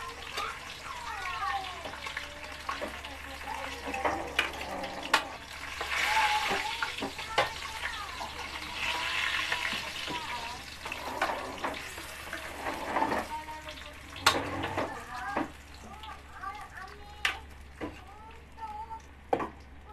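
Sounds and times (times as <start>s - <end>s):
fish sizzling in hot oil: 0.0s - 19.9s
metal spatula scraping pan: 8.6s - 13.4s.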